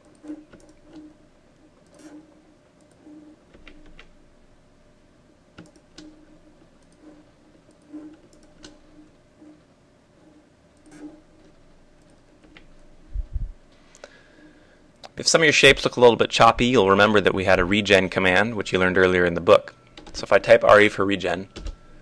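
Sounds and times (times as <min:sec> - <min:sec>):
computer mouse clicking: 0:00.0 - 0:01.1, 0:01.8 - 0:04.1, 0:05.6 - 0:06.2, 0:06.8 - 0:09.1, 0:10.8 - 0:12.9.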